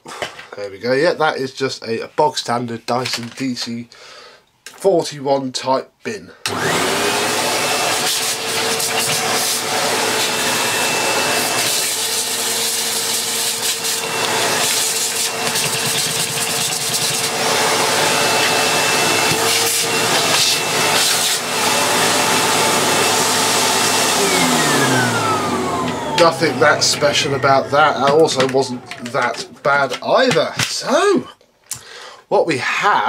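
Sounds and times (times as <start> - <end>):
vacuum cleaner running: 6.5 - 30.7.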